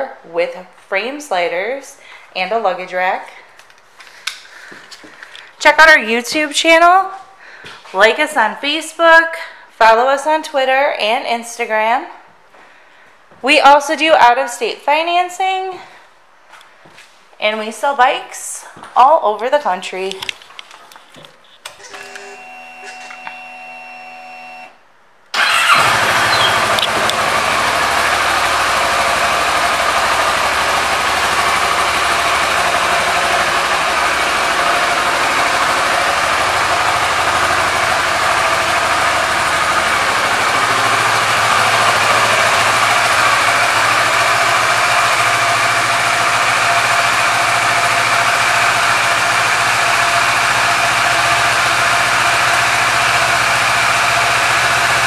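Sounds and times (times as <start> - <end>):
motorcycle engine starting: 25.3 - 55.0
motorcycle engine idling: 25.4 - 55.0.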